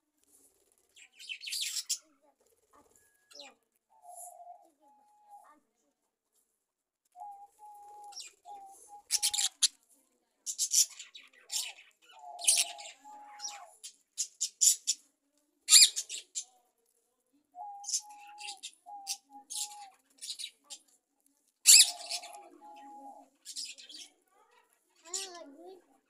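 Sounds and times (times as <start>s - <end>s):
budgerigars chirping: 9.1s - 9.7s, 12.3s - 13.0s, 21.7s - 22.3s.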